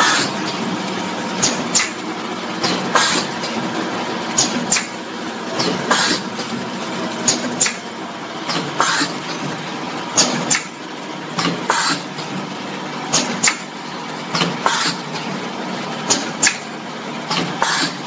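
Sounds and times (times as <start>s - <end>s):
machine moulds double clacks: 0.0s - 18.0s
steady machine hum: 0.0s - 18.0s.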